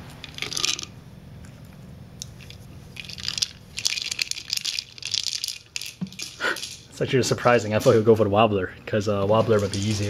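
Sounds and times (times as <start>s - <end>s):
kibble rattling in plastic ball: 0.2s - 0.9s, 2.4s - 6.9s, 9.4s - 10.0s.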